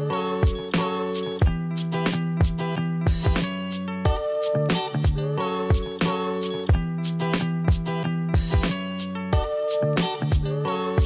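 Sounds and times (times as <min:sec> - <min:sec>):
guitar chords over a beat: 0:00.0 - 0:11.0.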